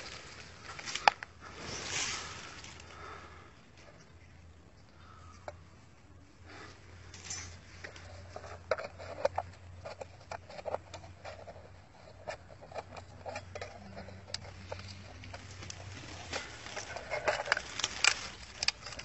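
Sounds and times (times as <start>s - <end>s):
trowel scraping in dirt: 7.1s - 19.0s.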